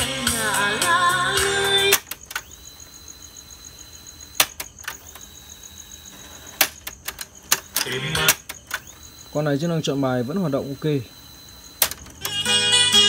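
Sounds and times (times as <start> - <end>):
faint high steady whine: 0.0 - 13.0
cassette deck buttons clicking: 1.8 - 2.6, 11.8 - 12.5.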